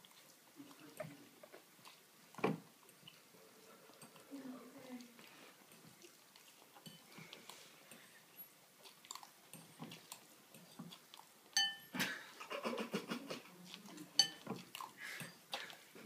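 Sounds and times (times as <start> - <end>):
smacking and licking: 0.0 - 16.0
dish clinking: 11.6 - 12.0, 14.2 - 14.5.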